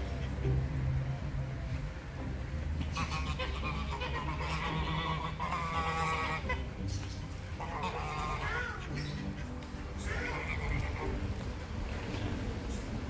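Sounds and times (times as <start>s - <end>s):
geese honking: 2.8s - 11.4s.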